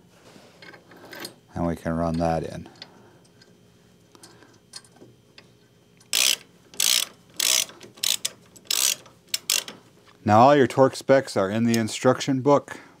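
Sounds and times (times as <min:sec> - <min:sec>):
ratchet wrench clicking: 0:06.1 - 0:09.8.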